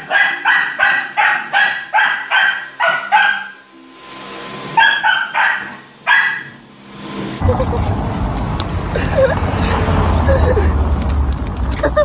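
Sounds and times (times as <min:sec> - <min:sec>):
small dog barking: 0:00.0 - 0:03.6, 0:04.8 - 0:06.6.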